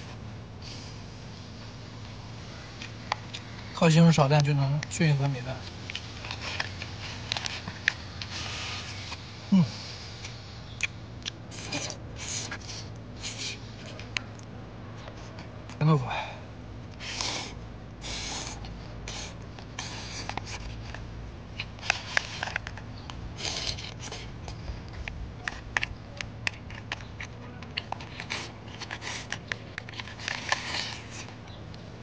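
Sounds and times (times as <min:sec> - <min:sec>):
wet chewing clicks and smacks: 0:10.7 - 0:11.4.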